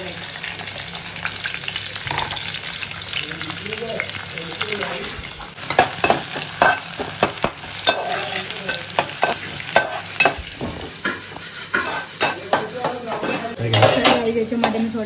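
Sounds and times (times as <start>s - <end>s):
paste sizzling in hot oil: 0.0s - 13.6s
spoon scraping a pan: 5.6s - 14.2s.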